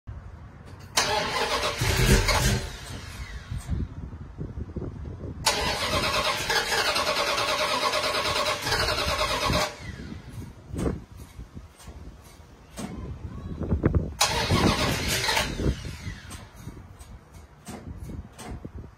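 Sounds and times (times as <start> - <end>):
engine running: 0.6 - 3.9, 5.4 - 12.4, 14.2 - 18.6
engine starting: 0.8 - 3.8, 5.4 - 10.9, 14.2 - 17.8.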